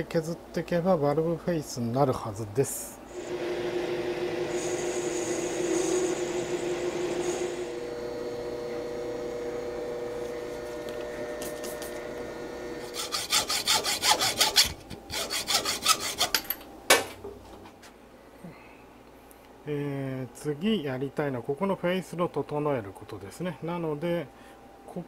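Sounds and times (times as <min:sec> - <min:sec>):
metal lathe humming: 0:03.1 - 0:16.5
tool bit cutting hiss: 0:04.4 - 0:07.7, 0:12.9 - 0:16.5.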